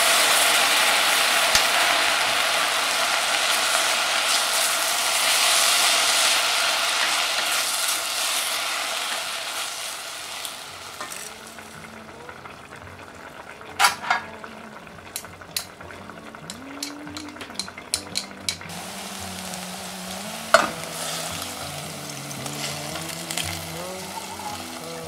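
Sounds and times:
onions sizzling in a pan: 0.0 - 25.0
spatula clicks and taps on pan: 16.5 - 18.7.

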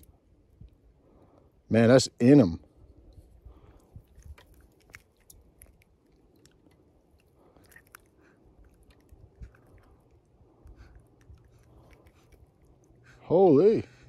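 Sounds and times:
handling crunches and clicks: 3.7 - 13.0.

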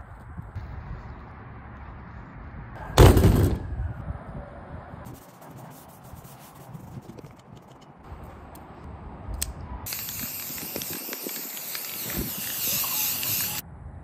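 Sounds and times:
spray paint can hissing: 9.9 - 13.6.

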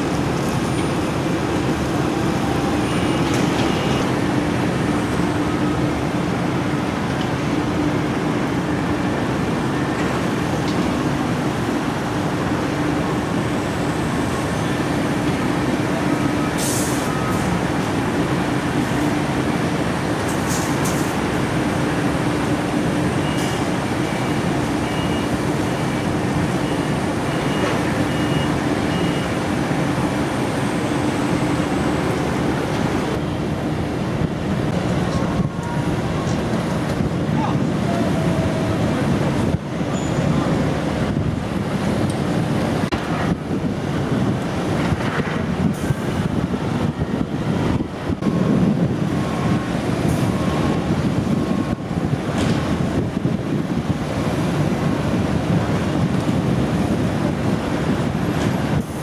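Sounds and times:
diesel engine drone: 0.0 - 59.0
high warning beeps: 2.8 - 4.2, 24.8 - 25.4, 26.0 - 29.4.

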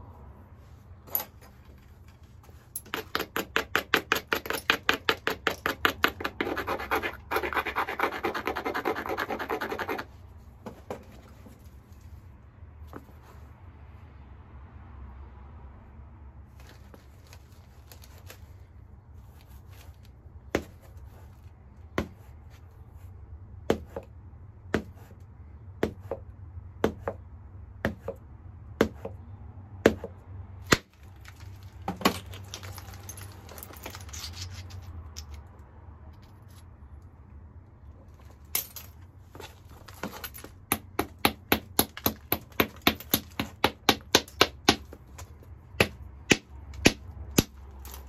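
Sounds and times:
stone rustling crackle: 30.9 - 35.4.

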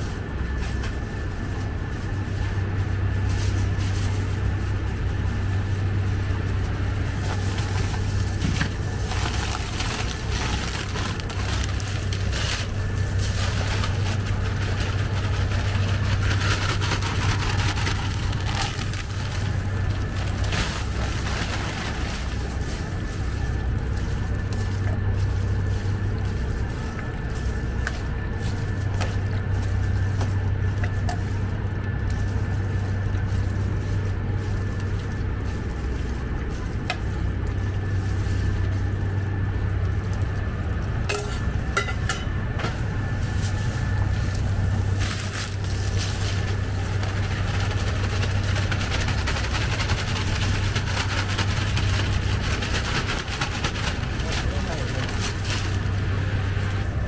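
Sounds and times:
kitchen machinery humming: 0.0 - 57.0
plastic bag rustling: 0.1 - 31.1, 42.7 - 57.0
utensil clinking on steel bowl: 41.1 - 42.3.

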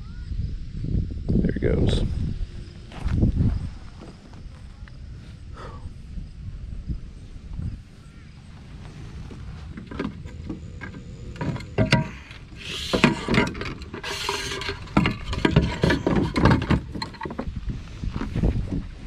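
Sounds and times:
short hissing rushes: 12.4 - 13.3.

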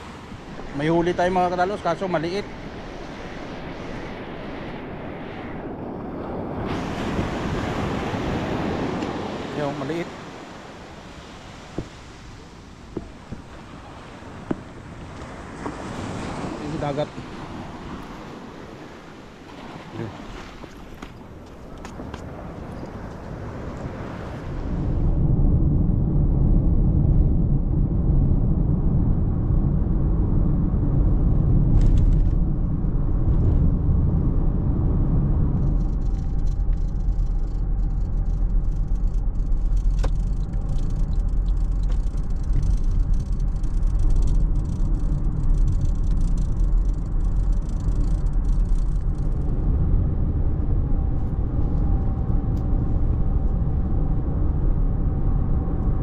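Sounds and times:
car engine and road rumble: 20.0 - 56.0
light rattling: 35.6 - 49.6.

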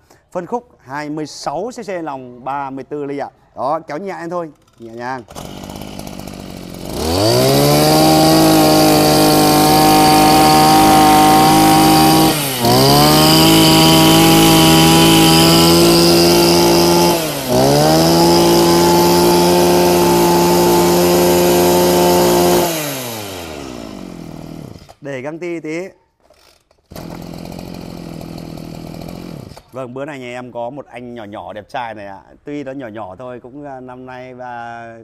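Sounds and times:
brush cutter engine revving: 4.6 - 25.0, 26.3 - 29.8.

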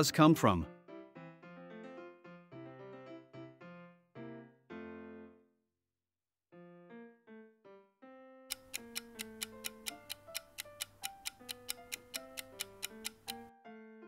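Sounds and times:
light piano music: 0.0 - 5.6, 6.5 - 14.0
clock-like ticking: 8.5 - 13.5.

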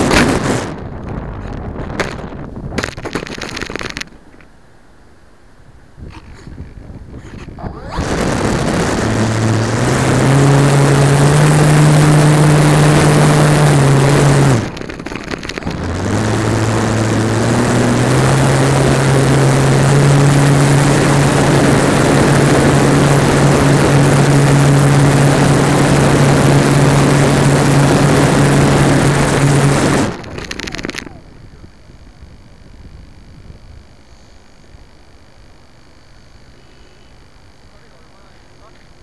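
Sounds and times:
electric motor and propeller humming: 0.0 - 39.0.

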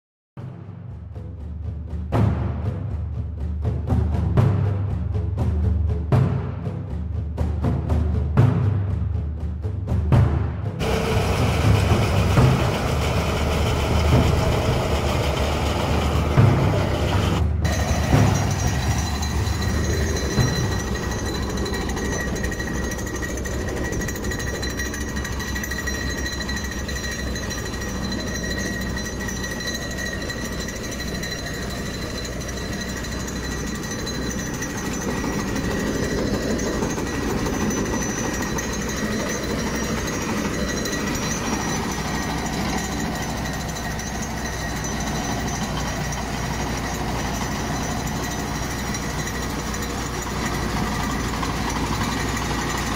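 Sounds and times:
vibrating drum pulsing rattle: 0.4 - 52.9
diesel engine under load: 10.8 - 52.9.

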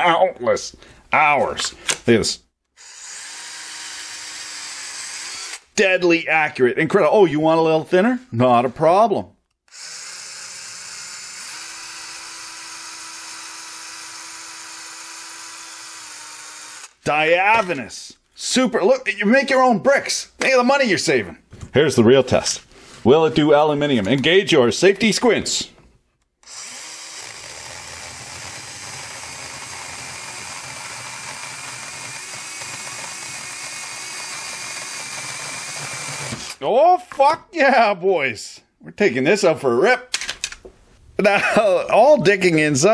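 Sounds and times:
mini chainsaw cutting brick: 2.8 - 5.7, 9.7 - 17.8, 26.4 - 36.6.

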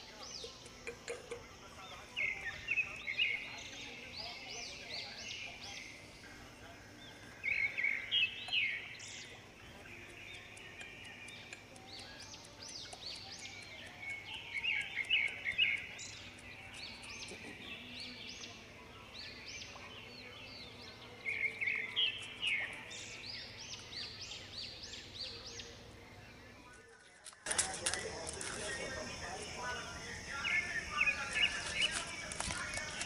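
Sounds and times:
small birds chirping: 0.0 - 33.0.

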